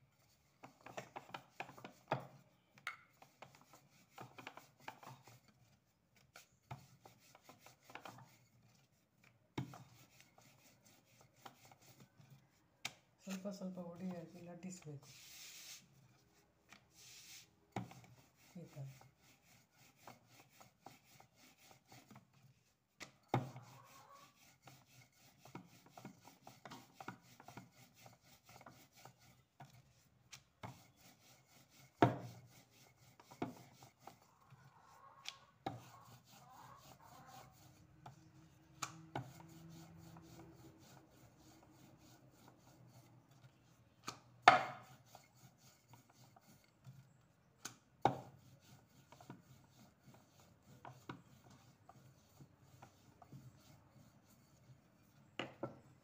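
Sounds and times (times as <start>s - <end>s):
rolling pin rubbing on dough: 0.0s - 12.6s, 13.2s - 47.2s, 48.0s - 55.9s
rolling pin knocking on board: 44.5s - 44.8s.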